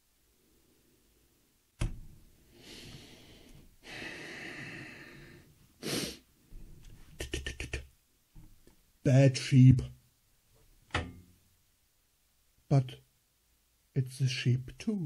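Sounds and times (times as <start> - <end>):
man breathing out in puffs: 2.5 - 6.2.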